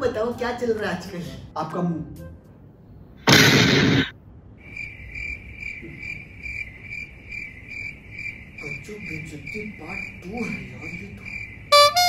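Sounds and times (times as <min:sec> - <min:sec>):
explosion burst: 0:03.3 - 0:04.1
crickets chirping: 0:04.4 - 0:12.0.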